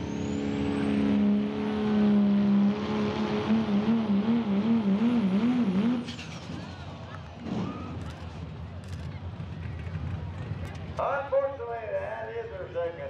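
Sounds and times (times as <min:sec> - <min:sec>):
high turbo whistle: 0:00.0 - 0:04.0
diesel engine at full throttle: 0:00.0 - 0:11.1.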